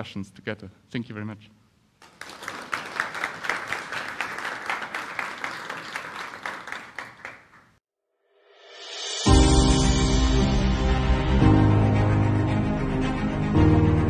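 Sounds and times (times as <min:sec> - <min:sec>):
audience applauding: 0:02.0 - 0:07.7
music: 0:08.3 - 0:14.0.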